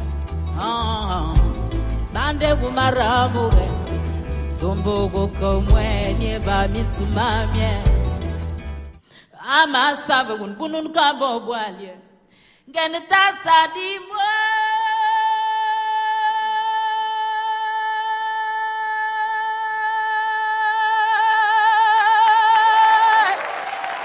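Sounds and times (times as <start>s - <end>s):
audience applause: 23.0s - 24.0s.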